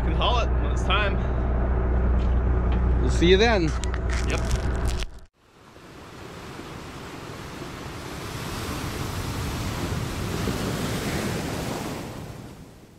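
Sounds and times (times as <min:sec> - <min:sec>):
wind: 0:00.0 - 0:12.9
sea rushing: 0:05.4 - 0:12.9.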